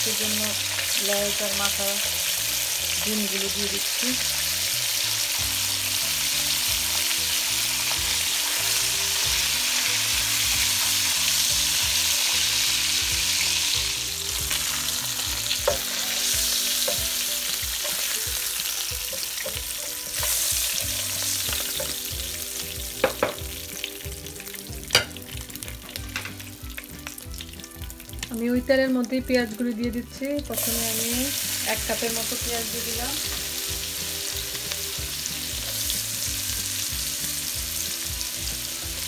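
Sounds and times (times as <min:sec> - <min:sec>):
fish sizzling in hot oil: 0:00.0 - 0:39.0.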